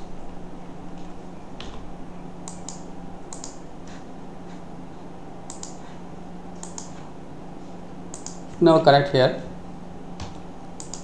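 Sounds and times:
steady low hum: 0.0 - 11.0
mouse and keyboard clicks: 2.5 - 3.6, 5.5 - 5.8, 6.6 - 7.0, 8.1 - 8.4, 10.8 - 11.0.

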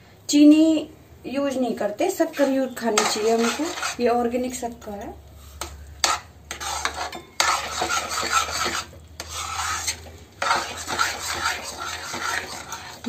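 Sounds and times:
spatula scraping metal pan: 2.1 - 4.2, 5.5 - 13.0.

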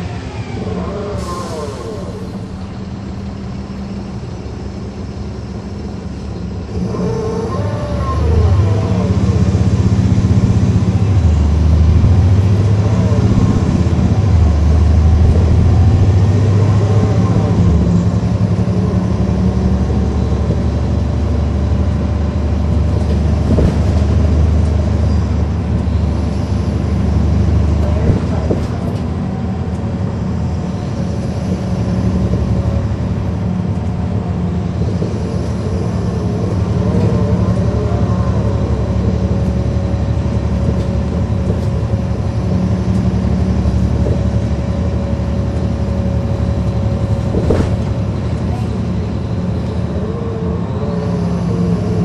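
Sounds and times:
bus diesel engine: 0.0 - 52.0
drivetrain whine: 0.0 - 52.0
transmission gear shifts: 46.5 - 49.8.

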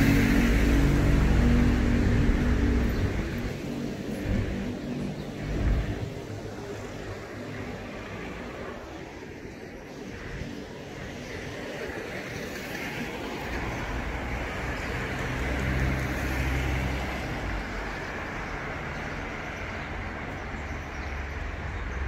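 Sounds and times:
passing car engine and tyres: 0.0 - 22.0
steady road noise: 0.0 - 22.0.

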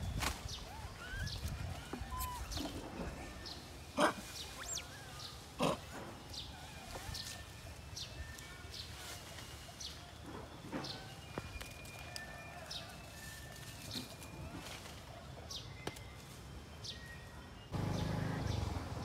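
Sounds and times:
monkeys squeaking and chirping: 0.4 - 8.4
loud monkey calls: 0.6 - 2.8, 3.9 - 7.3.

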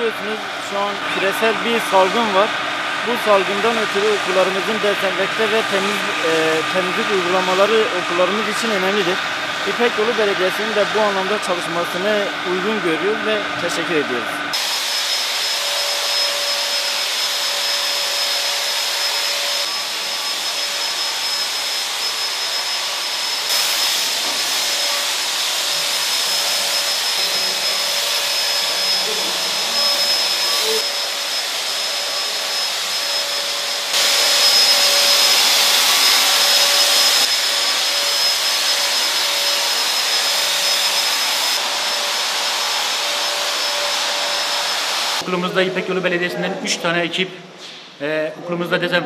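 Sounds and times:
fogger motor whine: 0.0 - 45.8.

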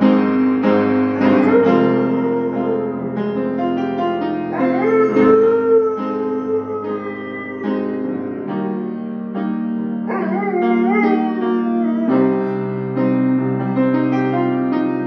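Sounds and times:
instrumental music with piano and guitar: 0.0 - 15.0
dog howling: 1.2 - 3.6, 4.5 - 9.1, 10.1 - 12.6.

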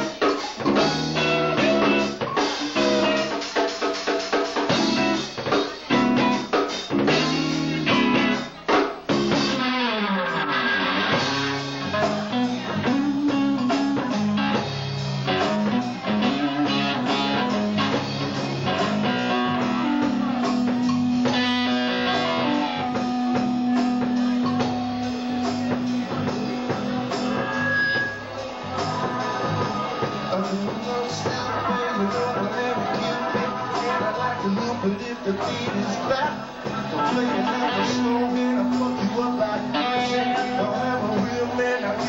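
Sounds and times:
drum kit: 0.0 - 42.0
electric guitar: 0.0 - 42.0
funk band playing live: 0.0 - 42.0.

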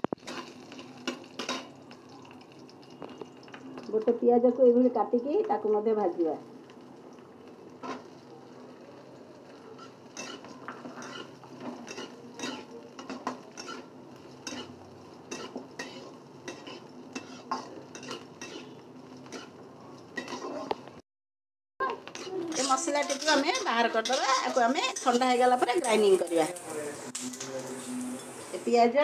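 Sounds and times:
spatula scraping a pan: 0.0 - 1.8, 7.8 - 8.2, 9.6 - 19.6, 20.2 - 20.8, 22.0 - 26.2
oil sizzling: 0.0 - 21.0, 21.8 - 29.0.

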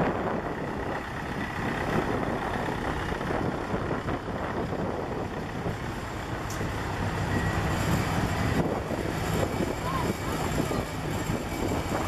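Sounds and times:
tractor engine running: 0.0 - 12.0
people talking: 9.7 - 11.4.

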